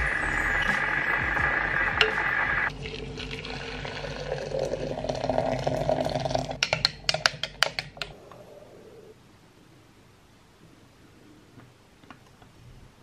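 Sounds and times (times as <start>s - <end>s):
water pouring into glass: 2.7s - 6.6s.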